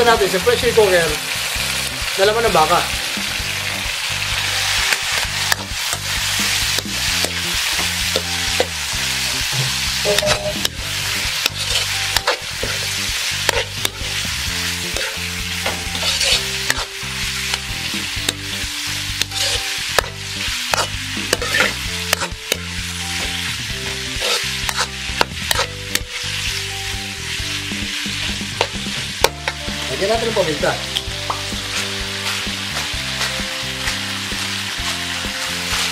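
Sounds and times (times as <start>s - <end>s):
meat sizzling in oil: 0.0s - 35.9s
spatula stirring and scraping: 4.5s - 29.6s, 31.2s - 35.9s.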